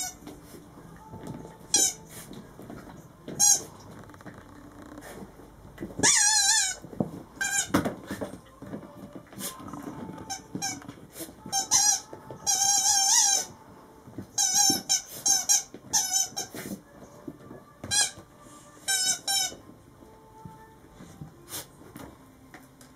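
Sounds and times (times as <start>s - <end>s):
rubber squeaky toy squeaking: 0.0s - 0.2s, 1.7s - 2.1s, 3.4s - 5.0s, 6.0s - 7.9s, 9.5s - 13.6s, 14.4s - 16.8s, 17.8s - 19.6s.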